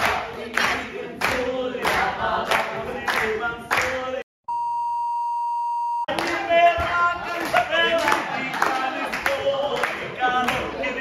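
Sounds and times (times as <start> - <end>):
crowd chanting: 0.0 - 4.0, 6.1 - 11.0
people clapping in time: 0.0 - 4.1, 6.1 - 11.0
steady beep tone: 4.5 - 6.1.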